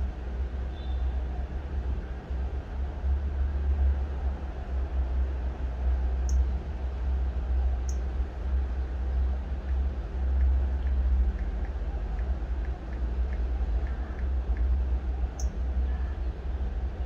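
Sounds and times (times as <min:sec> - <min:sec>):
low background rumble: 0:00.0 - 0:17.0
faint light ticks: 0:06.2 - 0:06.5, 0:07.8 - 0:08.1, 0:09.6 - 0:15.7.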